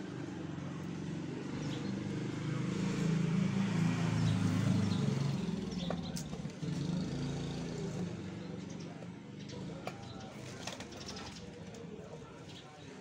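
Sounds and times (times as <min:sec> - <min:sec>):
vehicle engine passing by: 0:00.1 - 0:10.4.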